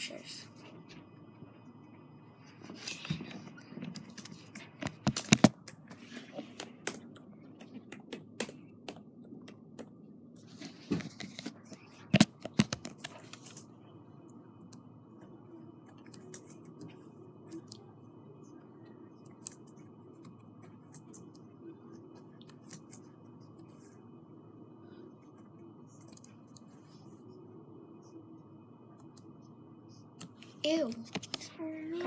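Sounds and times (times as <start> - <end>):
laptop keys and touchpad clicking: 3.9 - 10.0.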